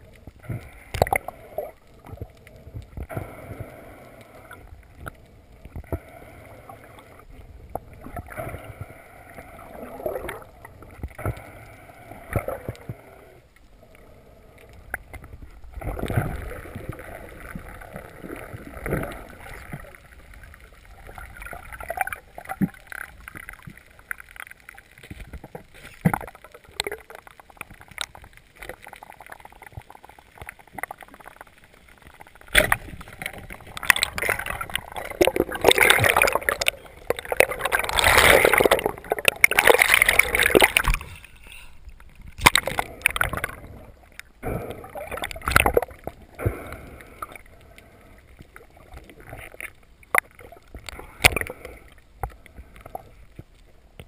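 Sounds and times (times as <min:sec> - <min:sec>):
bubbling and sloshing water: 0:00.0 - 0:54.0
underwater water noise: 0:00.0 - 0:54.0.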